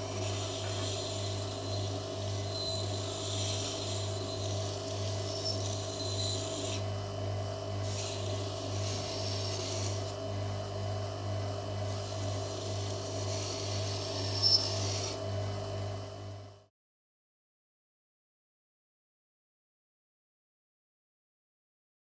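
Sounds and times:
metal rasping on sanding belt: 0.0 - 6.8, 7.8 - 10.1, 11.8 - 15.2
belt sander humming: 0.0 - 7.1, 7.7 - 15.3.

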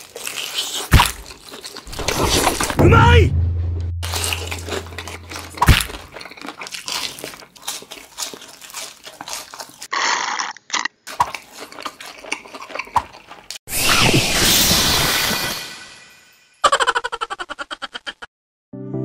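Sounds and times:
crunchy chewing: 0.0 - 2.7, 4.0 - 13.6.

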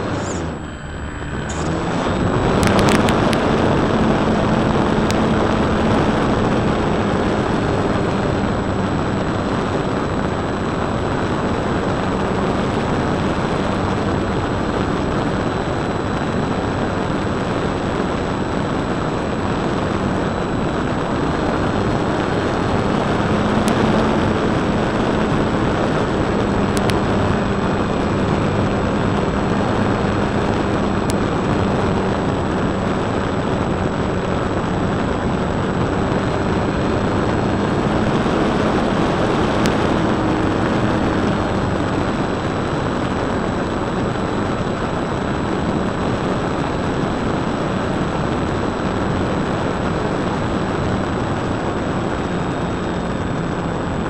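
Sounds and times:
model plane motor hum: 0.0 - 42.9
faint high whine: 0.0 - 54.0
rushing airflow: 0.0 - 54.0.

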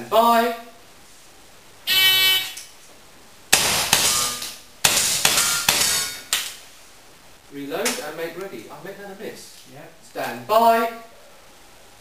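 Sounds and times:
shots echoing in a hall: 3.5 - 6.5
handgun shots hitting iron plates: 3.5 - 6.6.

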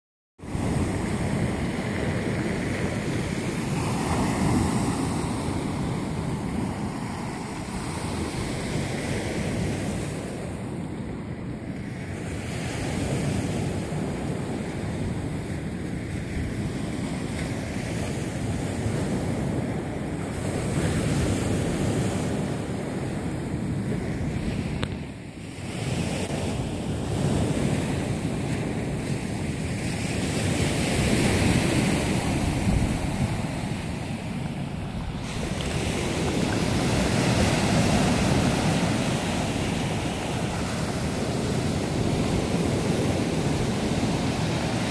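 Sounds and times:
wind buffeting microphone: 0.4 - 44.9
surf breaking on beach: 27.8 - 44.9.

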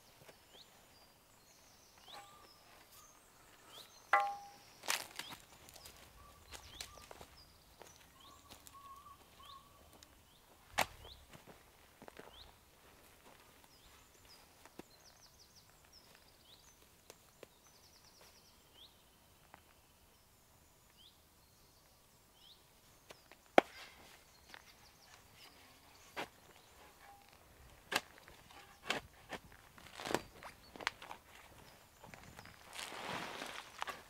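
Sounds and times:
small birds chirping: 0.0 - 11.4, 12.2 - 34.0
spade striking soil: 4.1 - 5.0, 26.2 - 29.4
rustle of work gloves: 23.7 - 34.0.

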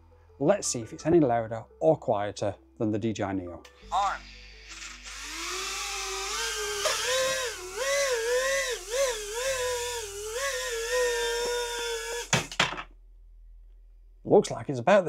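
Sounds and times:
drone motors whining: 4.4 - 12.5.

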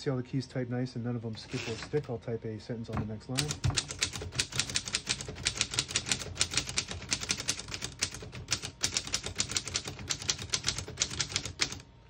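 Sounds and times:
typewriter keystrokes: 3.3 - 11.8.

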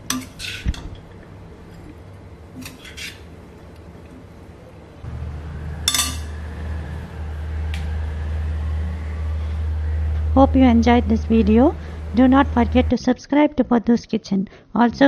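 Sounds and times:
steel ladle clinking on a wok: 0.0 - 0.8, 5.9 - 6.4
low steady hum: 0.0 - 14.2.

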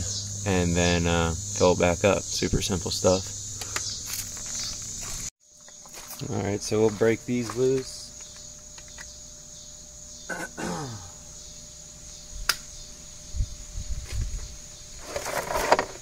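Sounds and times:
crickets chirring: 0.0 - 16.0
sharp click: 12.4 - 12.7.

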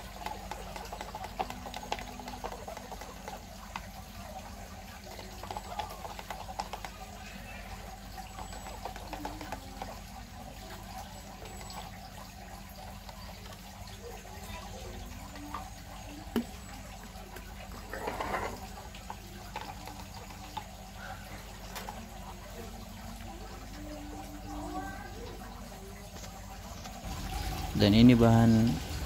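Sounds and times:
liquid stirring and scraping: 0.0 - 14.3, 15.3 - 22.8.

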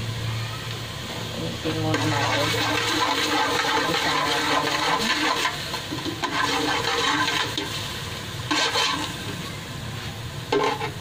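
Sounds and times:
pot hissing on stove: 0.0 - 11.0
metal ladle scraping pot: 1.8 - 7.8, 8.4 - 9.2, 10.5 - 11.0.

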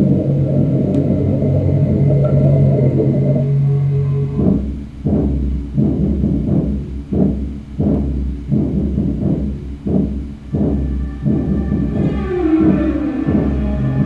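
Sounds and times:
slow low drumbeats: 0.0 - 14.0
trailer music through tv speaker: 0.0 - 14.0.

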